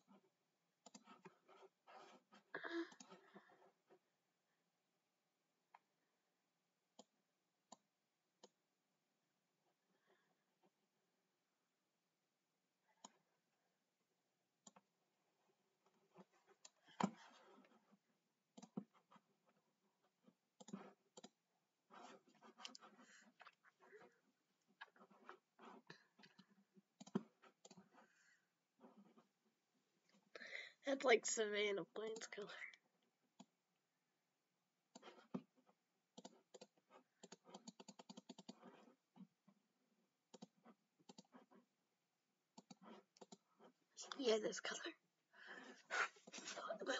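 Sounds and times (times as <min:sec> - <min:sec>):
keyboard and mouse clicking: 0:18.6 - 0:18.8, 0:27.0 - 0:27.9, 0:36.2 - 0:38.7, 0:40.3 - 0:41.3.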